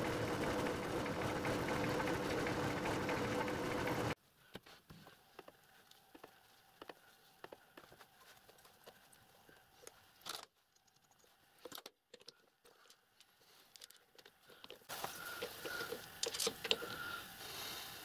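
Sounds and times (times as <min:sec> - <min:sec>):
steady hiss: 0:14.9 - 0:18.0.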